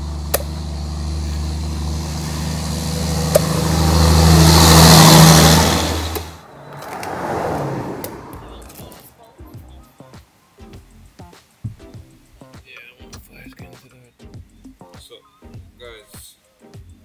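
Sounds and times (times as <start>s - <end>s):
vehicle engine humming: 0.0s - 10.0s
road hiss: 0.0s - 17.0s.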